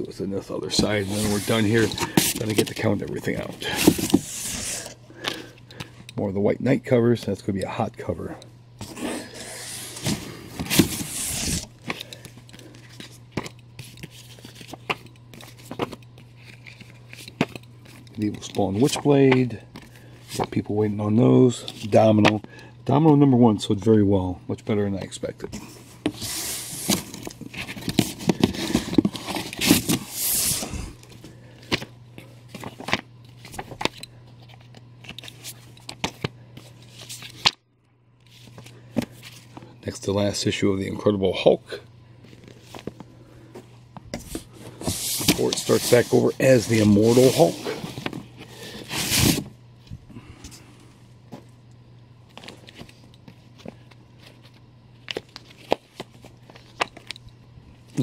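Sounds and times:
comic books rustling and sliding: 0.0s - 5.4s, 8.8s - 22.4s, 25.4s - 37.5s, 42.2s - 49.6s
glossy paper rustling on cardboard: 0.7s - 4.9s, 44.2s - 48.2s.

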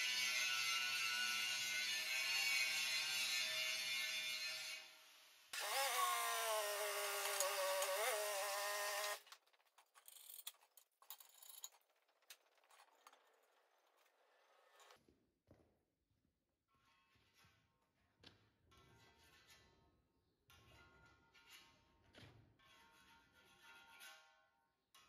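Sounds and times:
angle grinder grinding metal: 0.0s - 4.8s, 5.6s - 9.2s.

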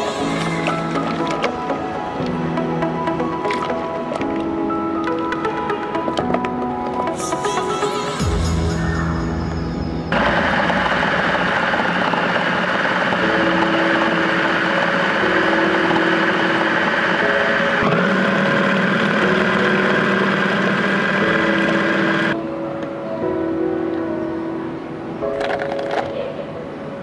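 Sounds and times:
food processor motor running: 10.2s - 22.4s
blade churning frozen fruit: 10.3s - 22.3s.

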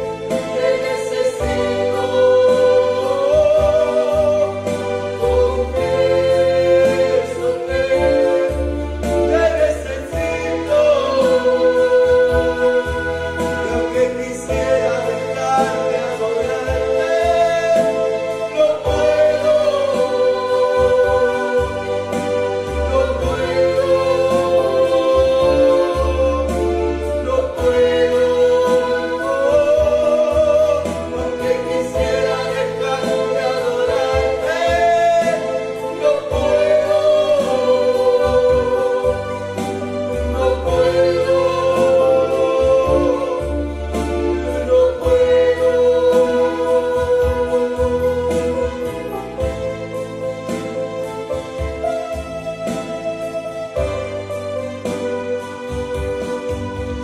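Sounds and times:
man singing: 0.0s - 52.6s
electronic keyboard: 0.0s - 57.0s
woman singing: 0.3s - 17.9s.

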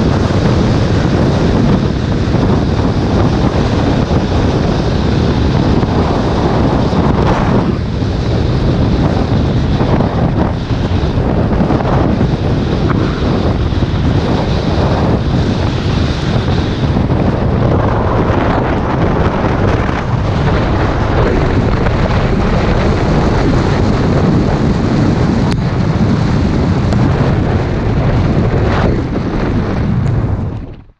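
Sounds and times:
wind buffeting microphone: 0.0s - 30.9s.

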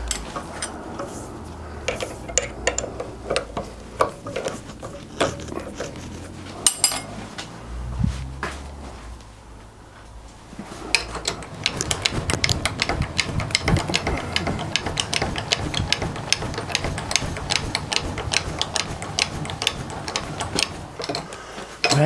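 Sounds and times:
rapid metallic clicking: 10.9s - 22.0s.

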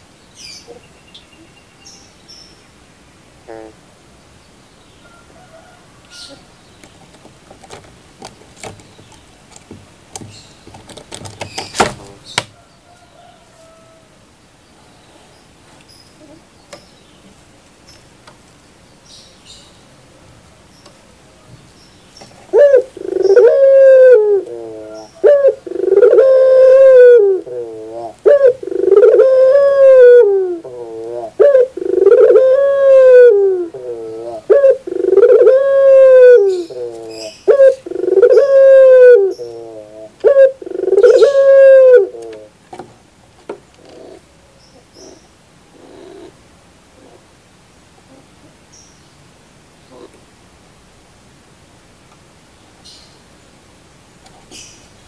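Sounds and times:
dove cooing: 3.4s - 3.8s, 22.5s - 42.6s, 43.8s - 44.3s, 45.0s - 46.4s.

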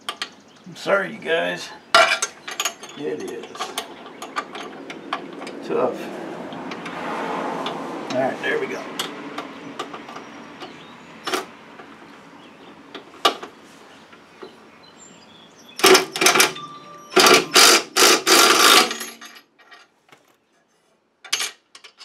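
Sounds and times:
cordless driver running: 17.2s - 18.9s.

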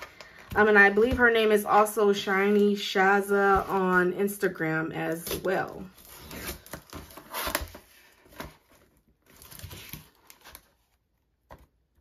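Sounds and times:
packaging rustling and crinkling: 5.3s - 11.7s.

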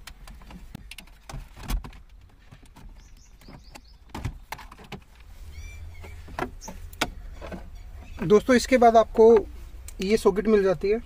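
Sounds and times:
bird chirping faintly: 2.8s - 4.5s, 5.3s - 8.8s.

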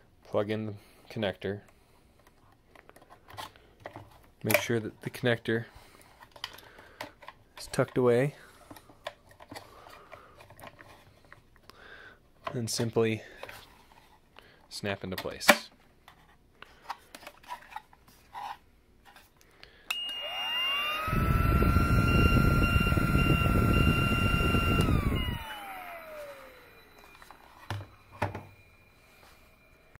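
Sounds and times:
blower fan motor whine: 19.9s - 30.0s.

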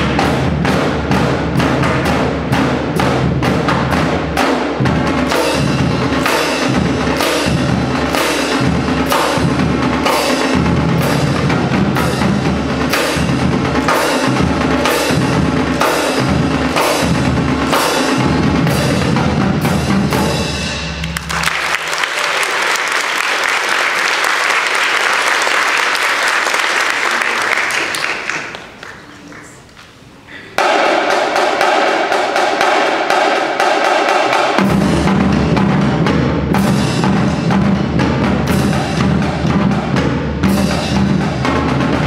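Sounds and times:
marching drumline cadence: 0.0s - 42.0s
audience applause: 21.0s - 29.7s.

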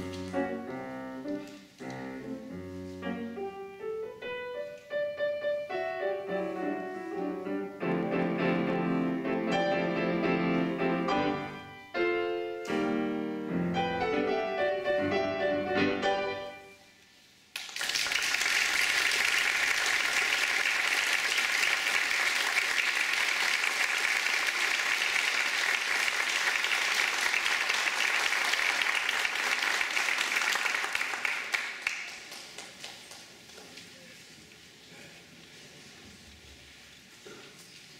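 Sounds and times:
grand piano notes ringing: 0.0s - 16.8s
audience applause: 17.6s - 33.7s.

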